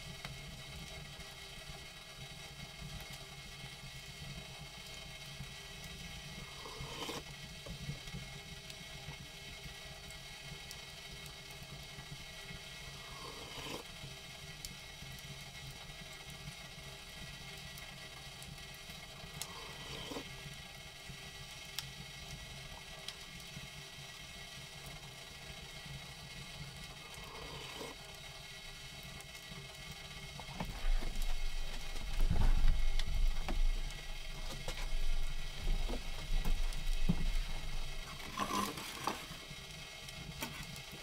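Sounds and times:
low steady hum: 0:26.6 - 0:41.0
spoon scraping metal pot: 0:38.1 - 0:39.2.

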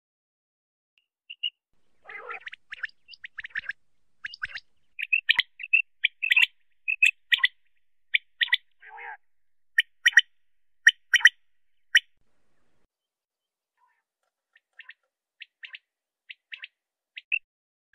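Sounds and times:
quail calling: 0:01.3 - 0:12.2
raspy bird sounds: 0:01.3 - 0:12.9, 0:13.8 - 0:17.4.

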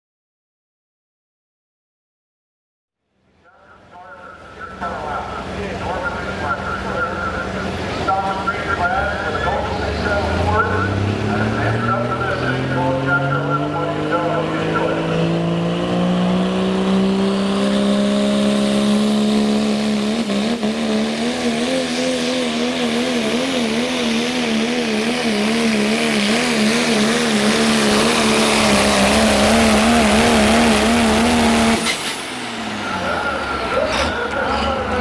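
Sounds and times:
truck engine at full throttle: 0:03.5 - 0:35.0.

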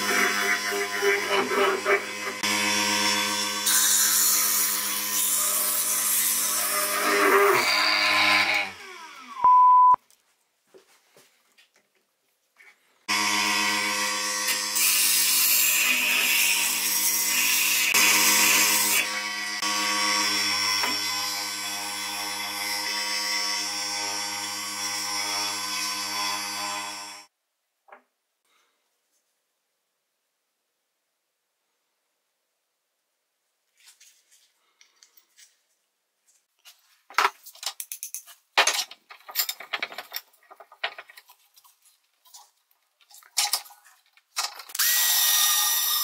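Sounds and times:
electric power tool running: 0:00.0 - 0:03.9, 0:04.7 - 0:09.4, 0:13.1 - 0:27.3, 0:44.8 - 0:46.0
power tool motor winding down: 0:06.8 - 0:09.4
high beep: 0:09.4 - 0:10.0.

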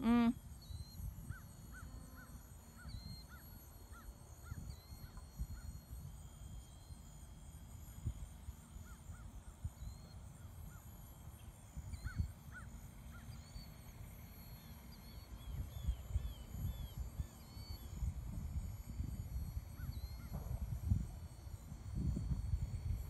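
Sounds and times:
wind buffeting microphone: 0:15.4 - 0:23.0.

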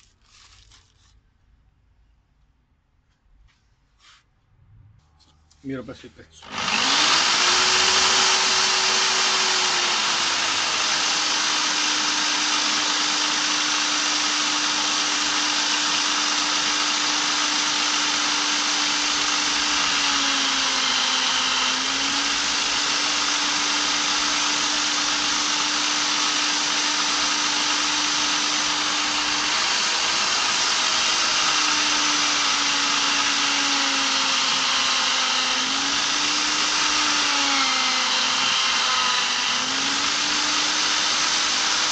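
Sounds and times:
electric drill running: 0:06.4 - 0:41.9.

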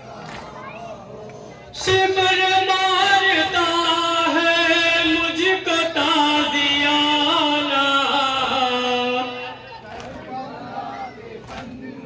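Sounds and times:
man singing a mourning lament: 0:01.7 - 0:09.8.

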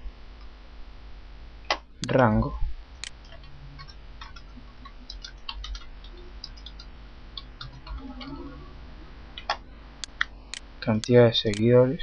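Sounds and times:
keyboard keys clicking: 0:03.0 - 0:08.4.

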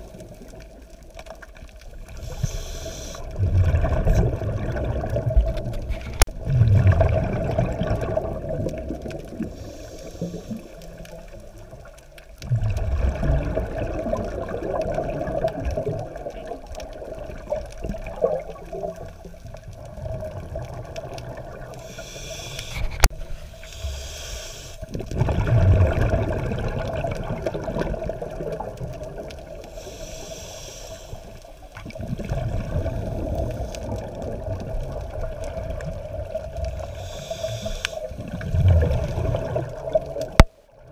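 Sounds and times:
exhaled bubbles gurgling underwater: 0:00.0 - 0:40.9
underwater wash: 0:00.0 - 0:40.9
regulator inhalation hiss: 0:02.2 - 0:03.3, 0:09.5 - 0:10.8, 0:21.8 - 0:24.9, 0:29.7 - 0:31.6, 0:36.7 - 0:38.2.

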